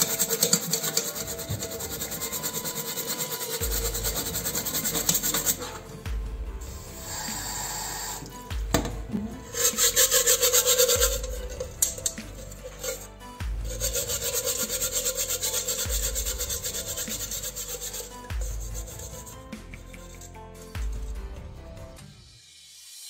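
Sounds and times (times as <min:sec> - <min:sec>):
steel pad scrubbing metal tin: 0:00.0 - 0:05.9, 0:09.4 - 0:20.3.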